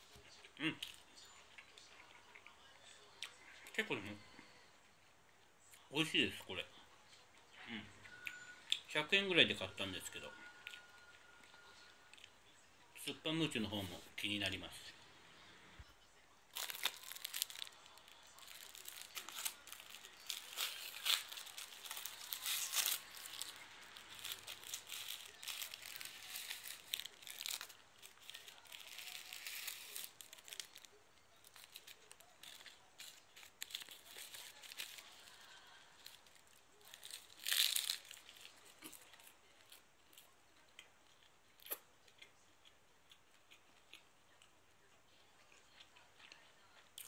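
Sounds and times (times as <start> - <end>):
person chewing: 0.0 - 2.6, 16.6 - 47.0
plastic wrapper crinkling: 16.5 - 39.6.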